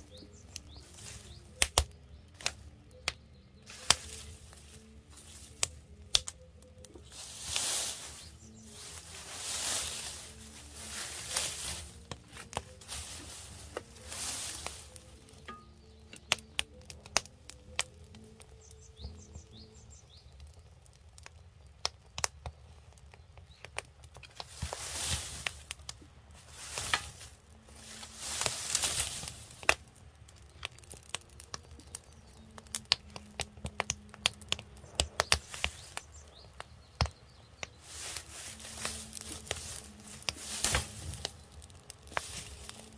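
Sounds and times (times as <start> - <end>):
wood fire crackling: 0.0 - 42.9
fire rushing: 7.0 - 15.5.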